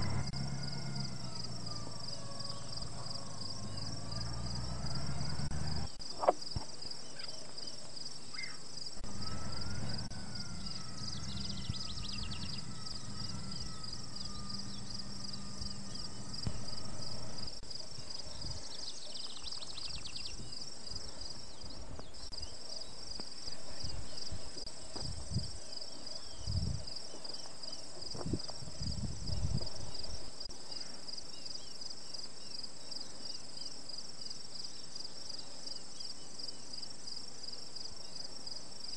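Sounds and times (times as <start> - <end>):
insects trilling: 0.0 - 38.9.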